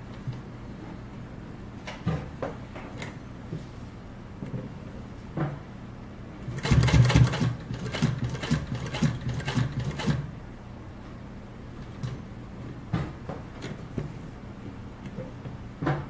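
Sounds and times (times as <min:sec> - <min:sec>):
sewing machine stitching: 0:06.5 - 0:10.3.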